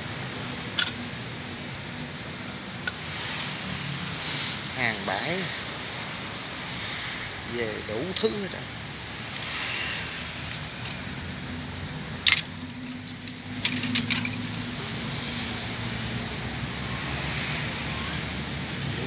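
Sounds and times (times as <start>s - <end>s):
road traffic hum: 0.0s - 19.0s
sharp metallic clinks: 0.7s - 1.1s, 4.2s - 4.8s, 10.4s - 14.9s.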